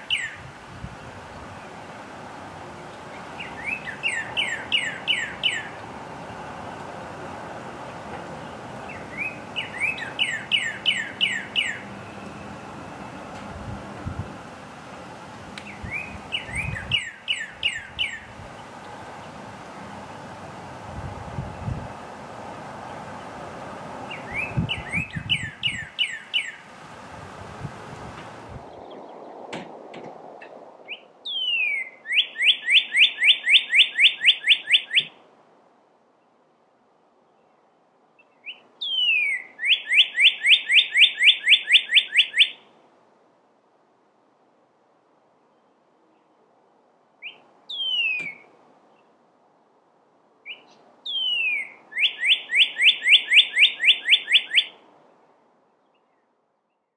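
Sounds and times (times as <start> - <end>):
cardinal whistling song: 0.0 - 1.9, 2.8 - 7.7, 8.5 - 14.6, 15.6 - 22.1, 22.8 - 26.6, 30.9 - 35.2, 38.5 - 42.6, 47.2 - 48.5, 50.5 - 54.8.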